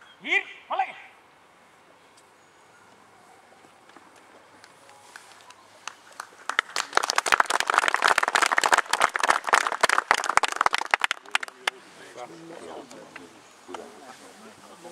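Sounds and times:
many hands clapping: 4.6 - 11.8.

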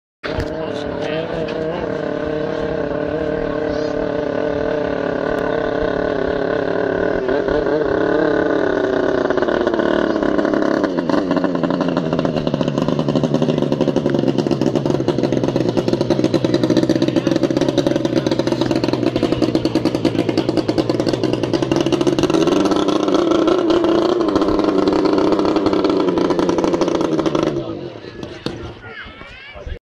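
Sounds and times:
racing boat engine running flat out: 0.3 - 28.8.

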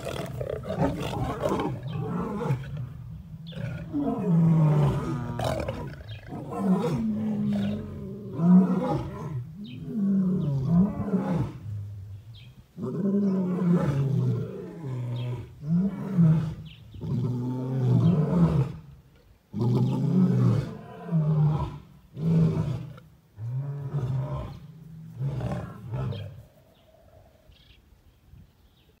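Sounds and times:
lions snarling and growling: 0.0 - 11.9, 19.6 - 27.6
lion low calls: 0.0 - 18.9.

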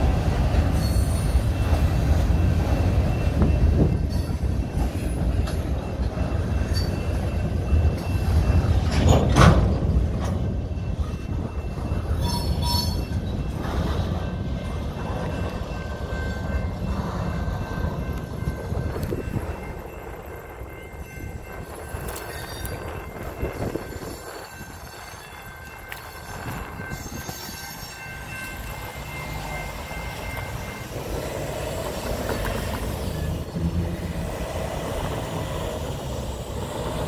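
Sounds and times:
steel wheels rumbling on rail: 0.0 - 37.0.

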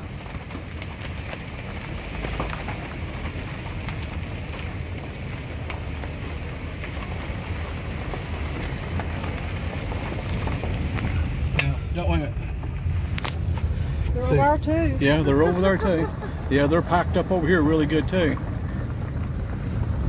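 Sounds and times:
car rumbling on tyres: 0.0 - 20.0
wind buffeting microphone: 0.0 - 20.0.

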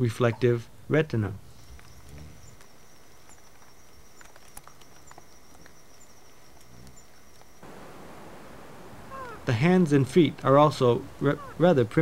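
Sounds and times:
insect chirp: 1.4 - 9.5
insects trilling: 1.4 - 11.7
faint clicks: 1.7 - 7.6.

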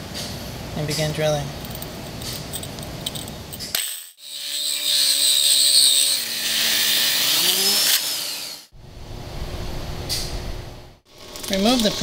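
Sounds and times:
core drill cutting tile: 3.8 - 8.7
dull low rumble: 8.8 - 11.0.

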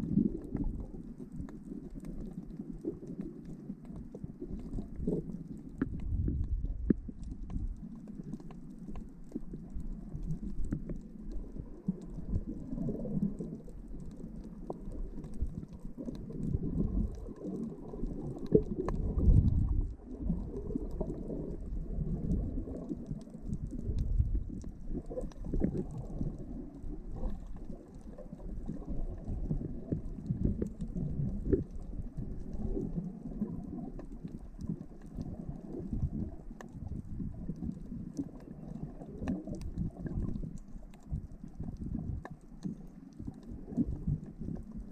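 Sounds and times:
faint underwater clicks: 0.0 - 44.9
underwater rumble of moving water: 0.0 - 44.9.

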